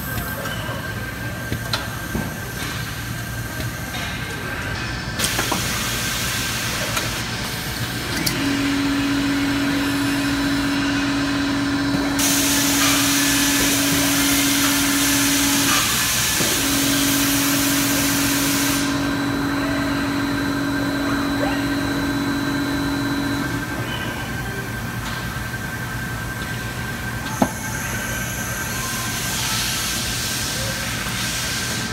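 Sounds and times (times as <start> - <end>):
steady humming tone: 6.7 - 30.8
hiss: 12.2 - 19.0, 28.7 - 31.9.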